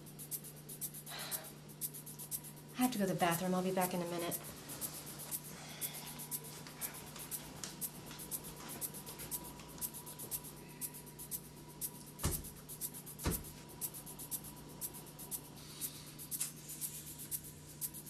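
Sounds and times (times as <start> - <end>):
steady low hum: 0.0 - 18.0
dull thumps: 12.2 - 12.6, 13.2 - 13.6.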